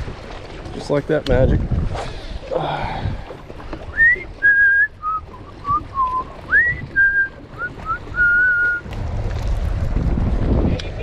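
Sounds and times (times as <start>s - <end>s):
person whistling a tune: 4.0s - 8.8s
low rumble: 8.5s - 11.0s.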